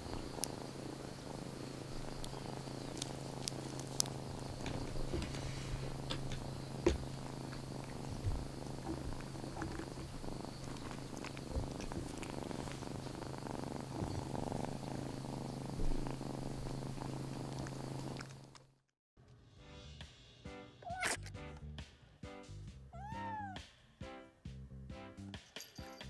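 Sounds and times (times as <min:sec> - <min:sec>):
kitten purring: 0:00.0 - 0:18.6, 0:23.0 - 0:23.6.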